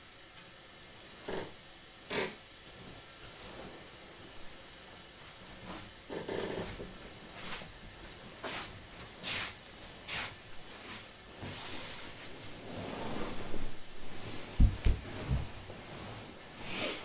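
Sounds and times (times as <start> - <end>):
fabric rustling: 2.6 - 17.0
socked feet sliding on mats: 6.6 - 17.0
soft thump on mat: 14.6 - 15.6.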